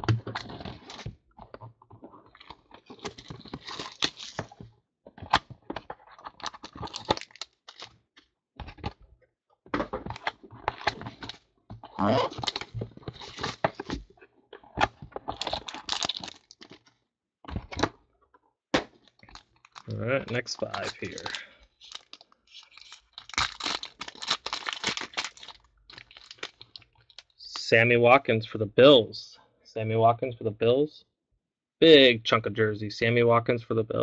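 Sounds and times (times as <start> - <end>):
foil packs crinkling: 3.1 - 4.4, 6.4 - 7.9, 12.3 - 14.0, 15.3 - 16.8, 19.2 - 27.3
cardboard boxes being opened: 20.3 - 22.2.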